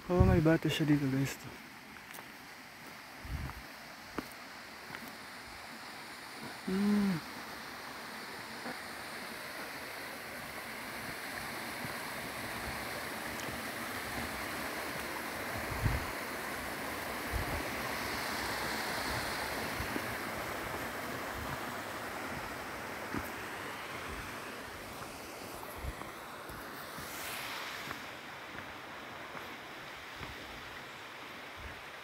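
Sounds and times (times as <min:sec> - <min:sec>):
stream rushing over boulders: 0:00.0 - 0:32.0.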